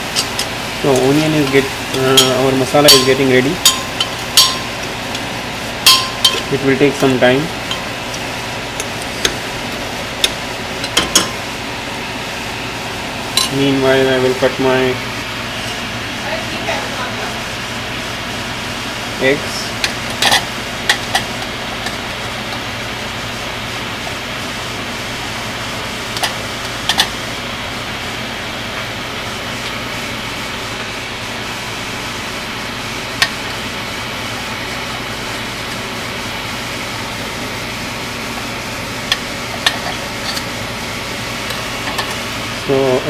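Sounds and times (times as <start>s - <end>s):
steady mechanical hum: 0.0s - 43.0s.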